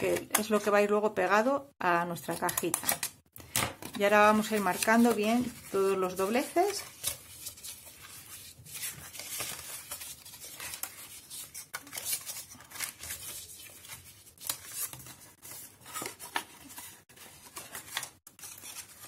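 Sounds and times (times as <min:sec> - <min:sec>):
cardstock folding and crackling: 0:02.2 - 0:19.0.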